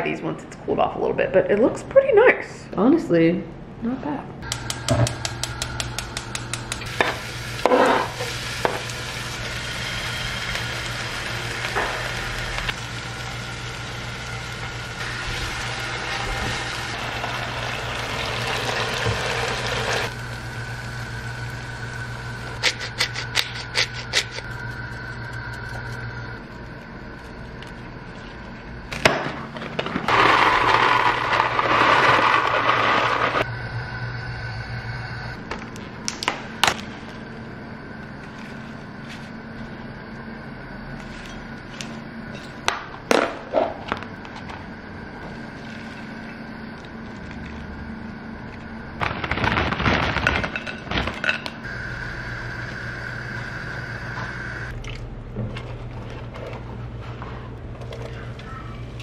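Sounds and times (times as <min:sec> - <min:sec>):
steady low hum: 0:02.6 - 0:31.7, 0:33.3 - 0:59.0
ceramic bowls clicking on stone: 0:04.5 - 0:06.9.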